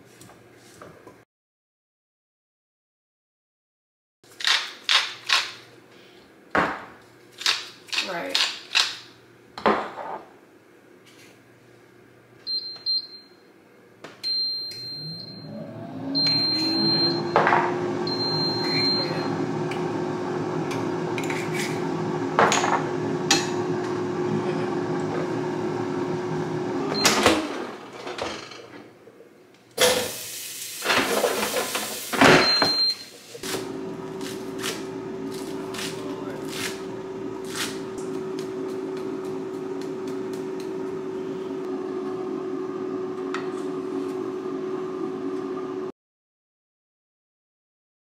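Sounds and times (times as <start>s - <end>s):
air fryer fan humming: 11.9s - 28.4s, 29.8s - 45.9s
air fryer beeping: 12.5s - 13.5s, 14.2s - 27.7s, 30.9s - 45.9s.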